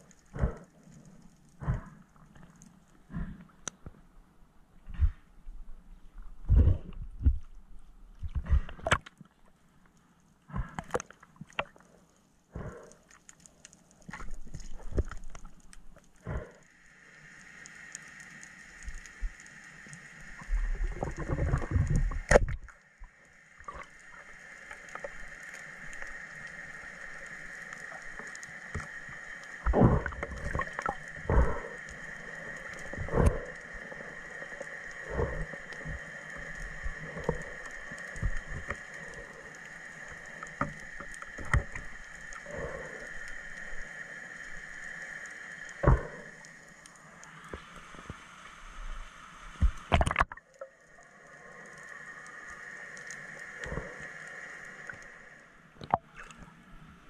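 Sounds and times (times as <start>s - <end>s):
low underwater rumbling: 0.0s - 9.5s, 20.2s - 26.2s, 27.0s - 44.9s, 45.6s - 46.6s.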